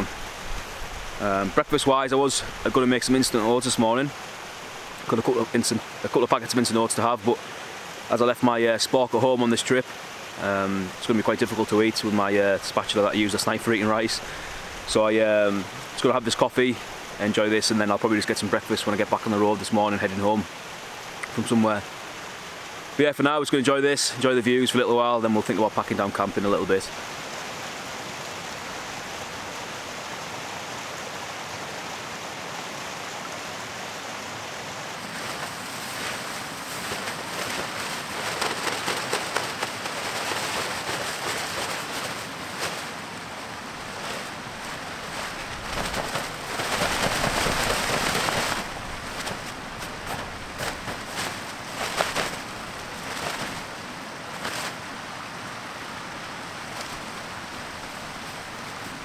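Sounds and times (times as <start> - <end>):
tent fabric rustling and crinkling: 0.0 - 22.8, 34.7 - 59.0
steady rushing background: 35.0 - 54.8.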